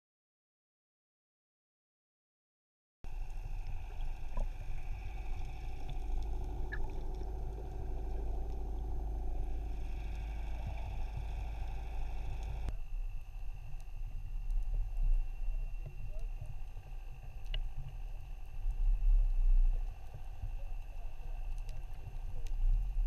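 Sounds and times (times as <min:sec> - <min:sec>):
boat machinery rumbling: 0:03.1 - 0:12.7
faint steady whine: 0:03.1 - 0:23.0.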